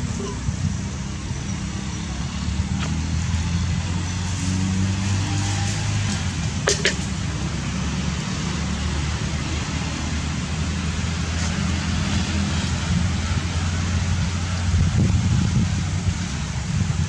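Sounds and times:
motorbike engine humming: 6.1 - 7.7.

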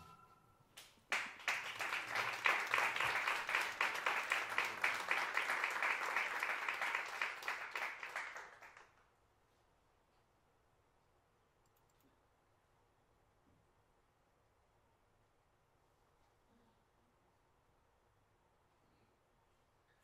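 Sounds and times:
audience applauding: 1.1 - 9.0.

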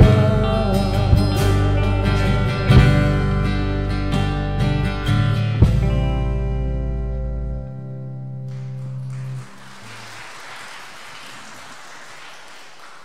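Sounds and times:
guitar chord ringing: 0.0 - 9.1
congregation applauding: 8.5 - 13.0.

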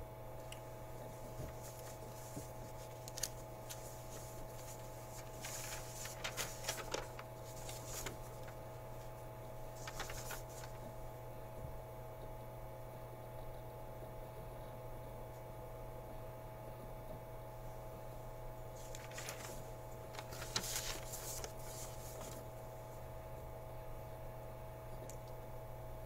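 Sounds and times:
low electrical hum: 0.0 - 26.0
paper rustling: 1.0 - 10.9, 18.8 - 22.6.

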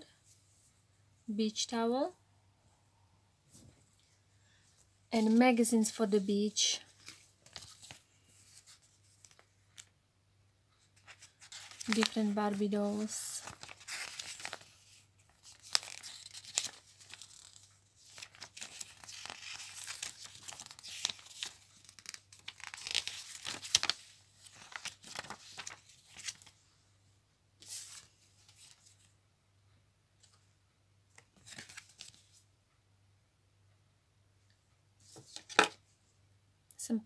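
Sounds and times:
paper rustling and crinkling: 5.1 - 9.9, 11.0 - 26.6, 27.6 - 29.1, 31.2 - 32.4.

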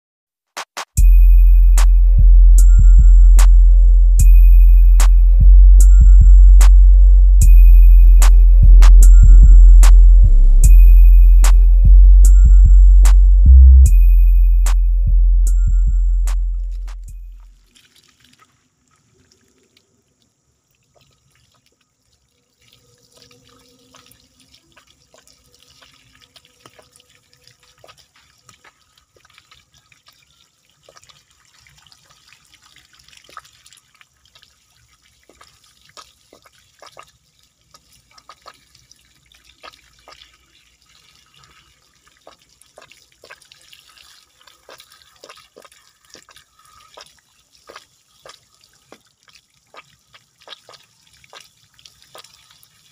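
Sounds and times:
hose water splashing on rocks: 16.8 - 52.9.

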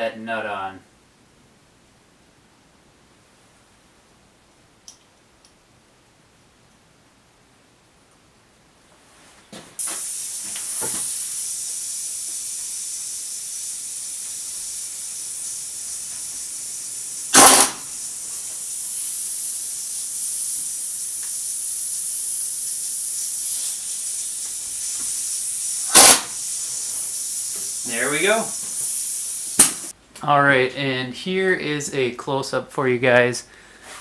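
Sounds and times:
steady hiss: 0.0 - 34.0
impact wrench bursts: 9.8 - 18.2, 25.4 - 26.6.

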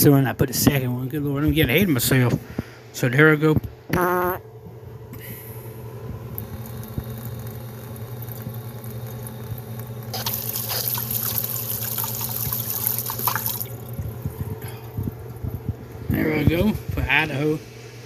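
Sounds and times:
steady low hum: 0.0 - 18.0
liquid sloshing: 6.4 - 16.1.

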